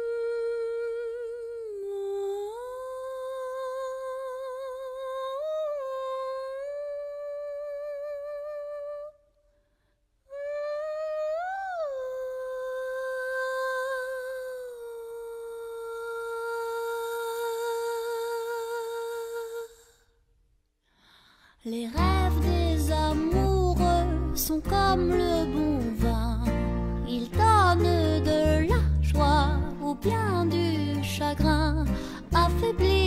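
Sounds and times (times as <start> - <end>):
high voice humming a melody: 0.0 - 9.2, 10.3 - 20.0.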